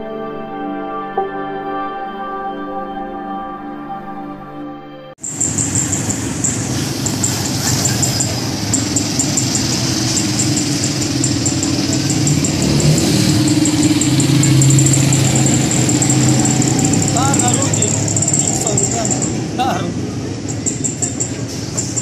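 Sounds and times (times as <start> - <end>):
vehicle engine humming: 5.2 - 22.0.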